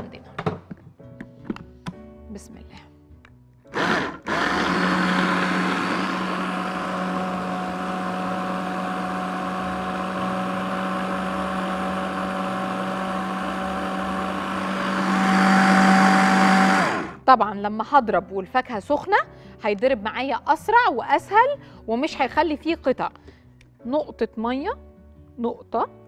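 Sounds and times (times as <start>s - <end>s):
hand blender motor humming: 3.7s - 17.2s.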